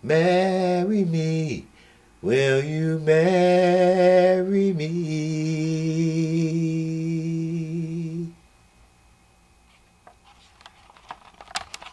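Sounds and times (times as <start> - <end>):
man singing a long note: 0.0 - 8.4.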